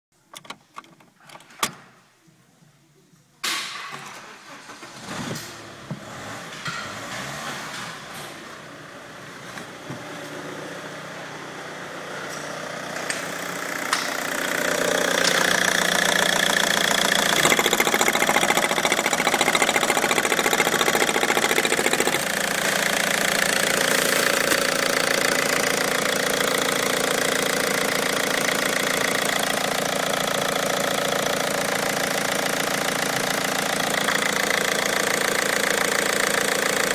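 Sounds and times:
diesel engine idling: 10.0s - 36.9s.

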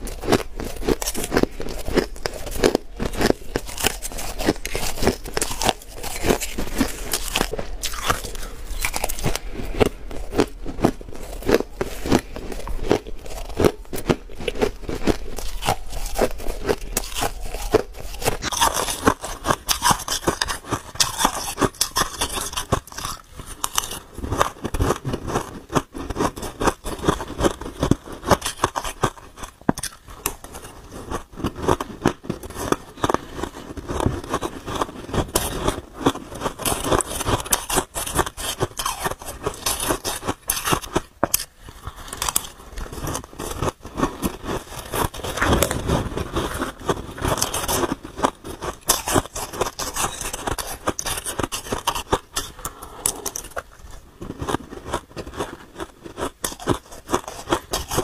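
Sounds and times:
ice being chewed: 0.0s - 58.0s
metal spoon scraping ice: 15.4s - 25.6s, 26.2s - 31.8s, 34.3s - 53.6s, 54.4s - 58.0s.

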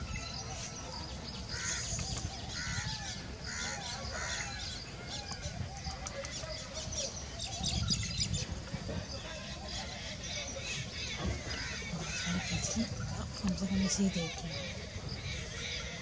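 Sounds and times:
crows cawing: 1.5s - 6.4s, 9.6s - 16.0s.

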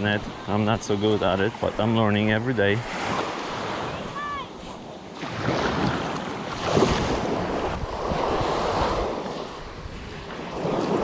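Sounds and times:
small waves washing on sand: 0.0s - 11.0s
wind buffeting microphone: 5.3s - 11.0s.

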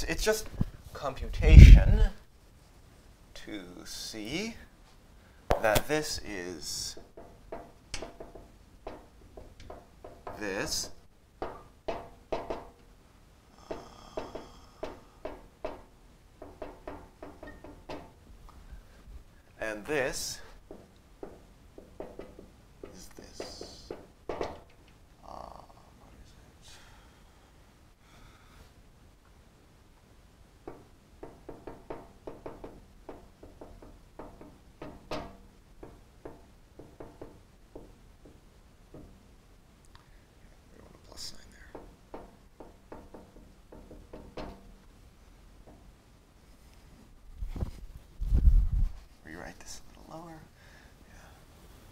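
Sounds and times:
marker tapping and squeaking on whiteboard: 6.9s - 12.8s, 13.6s - 18.2s, 20.2s - 25.0s, 30.6s - 39.2s, 41.1s - 44.9s.

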